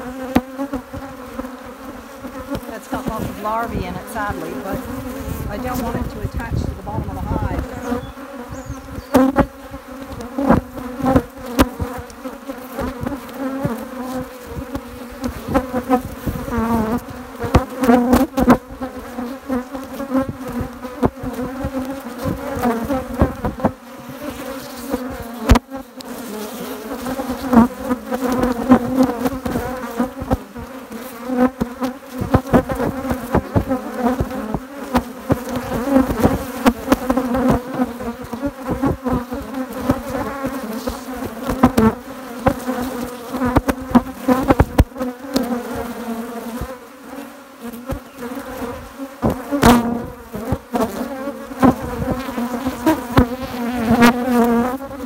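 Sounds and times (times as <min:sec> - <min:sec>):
honeybees buzzing: 0:00.0 - 0:55.0.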